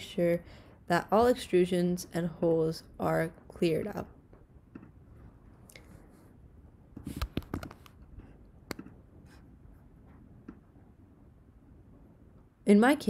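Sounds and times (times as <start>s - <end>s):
faint clicks and knocks: 4.3s - 5.9s, 6.9s - 10.9s.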